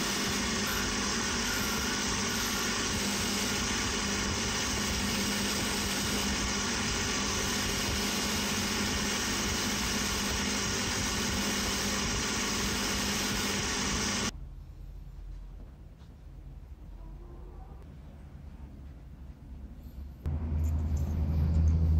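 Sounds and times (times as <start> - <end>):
bench grinder running: 0.0 - 14.3.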